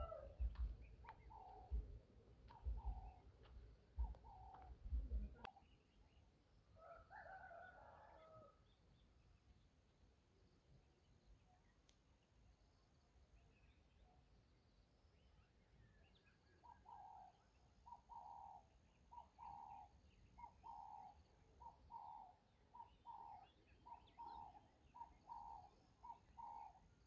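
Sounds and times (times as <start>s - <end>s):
faint bird calling: 0.0s - 3.4s, 4.0s - 5.7s, 16.5s - 27.0s
small birds chirping: 0.0s - 6.5s, 10.8s - 27.0s.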